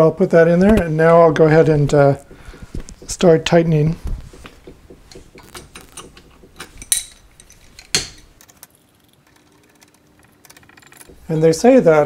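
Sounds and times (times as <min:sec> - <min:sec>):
metal hand tools clinking: 0:05.1 - 0:08.4.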